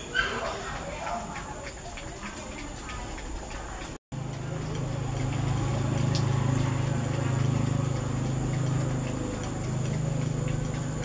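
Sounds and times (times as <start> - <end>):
engine humming: 2.5 - 11.0.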